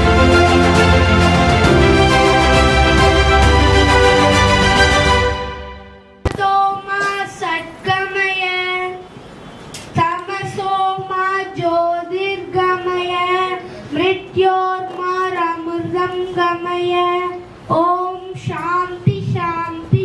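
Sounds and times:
boy chanting into a microphone: 6.3s - 9.1s, 9.9s - 20.0s.

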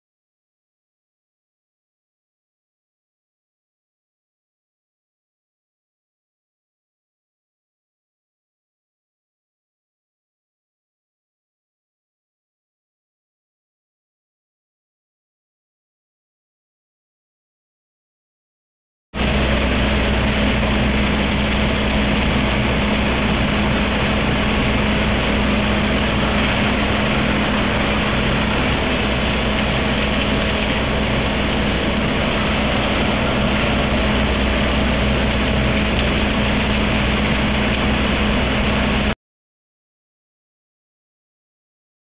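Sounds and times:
grinding machine humming: 19.2s - 39.2s.

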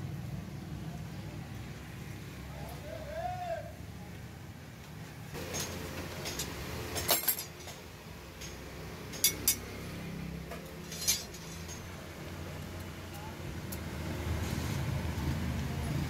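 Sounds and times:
steel strips clinking: 5.4s - 13.9s.

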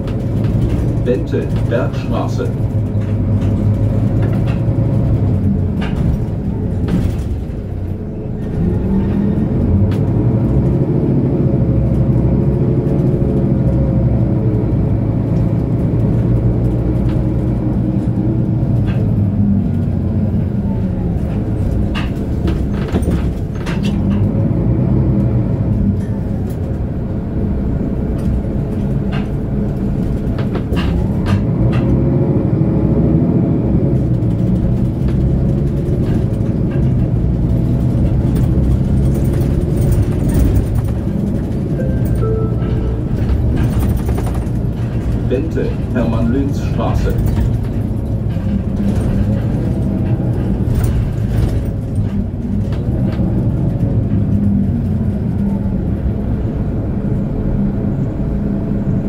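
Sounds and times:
bus diesel engine accelerating: 0.0s - 59.0s.

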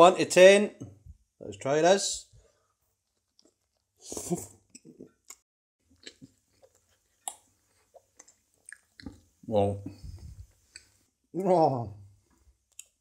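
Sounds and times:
man chewing food: 2.6s - 9.4s, 10.2s - 11.1s.

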